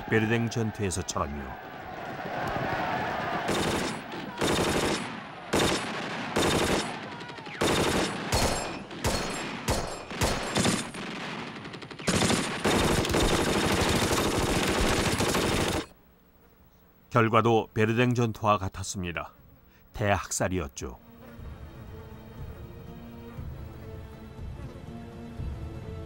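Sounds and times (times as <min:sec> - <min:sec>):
single rifle shots: 0:03.5 - 0:13.5
automatic machine-gun fire: 0:03.5 - 0:16.0.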